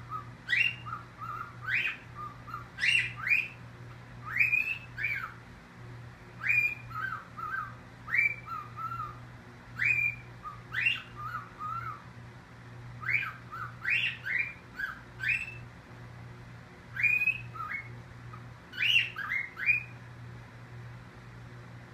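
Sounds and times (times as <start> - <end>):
cockatiel calling: 0.0 - 3.6, 4.2 - 5.4, 6.4 - 9.2, 9.8 - 12.1, 13.0 - 15.7, 16.9 - 20.0.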